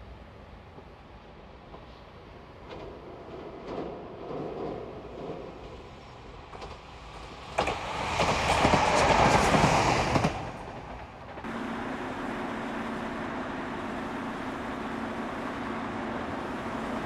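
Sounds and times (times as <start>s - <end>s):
train wheels clacking over rail joints: 7.5s - 13.3s.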